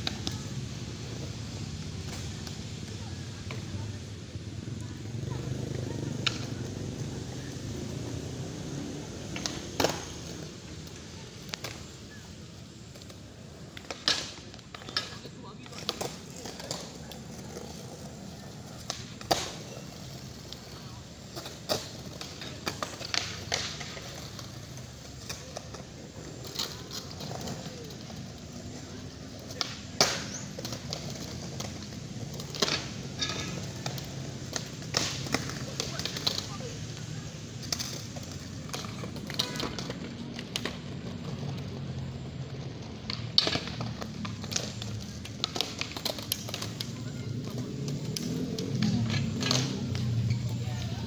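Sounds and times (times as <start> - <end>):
skateboards clacking on concrete: 0.0 - 51.0.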